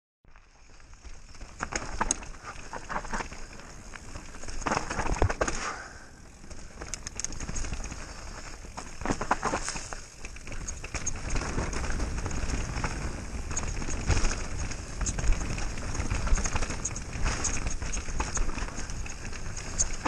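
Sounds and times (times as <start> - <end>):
tyres rolling over dirt and leaves: 0.3 - 20.0
bike rattling over bumps: 0.4 - 20.0.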